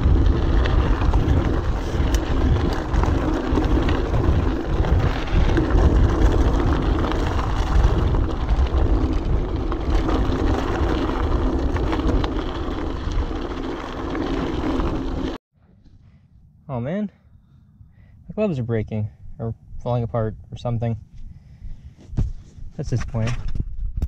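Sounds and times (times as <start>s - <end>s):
bike rattling: 0.0s - 15.4s
tyres crunching over gravel: 0.0s - 15.4s
wind rumbling on microphone: 0.0s - 16.6s, 17.3s - 24.0s.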